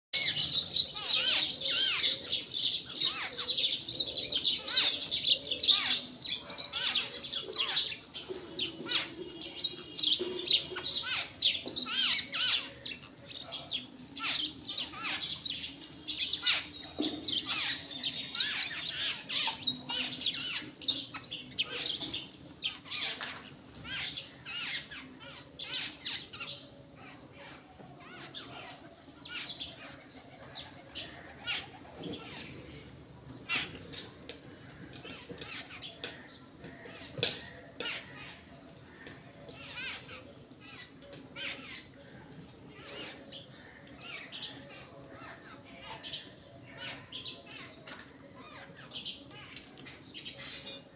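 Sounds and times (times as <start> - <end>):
birds chattering: 0.1 - 50.9.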